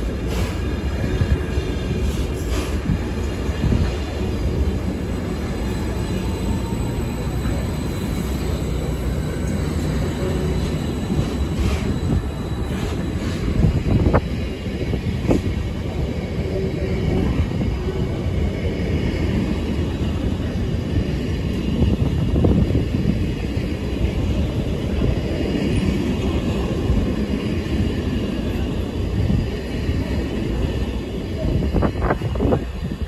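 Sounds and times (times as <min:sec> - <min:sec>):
train wheels rumbling on rail: 0:00.0 - 0:33.0.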